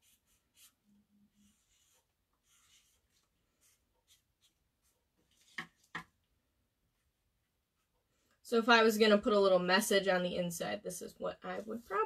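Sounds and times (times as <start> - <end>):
marker scratching on paper: 0.0 - 6.0.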